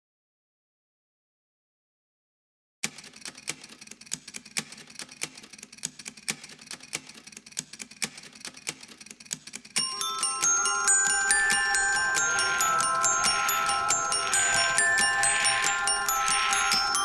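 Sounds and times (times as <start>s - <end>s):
glockenspiel tune: 9.8s - 17.0s.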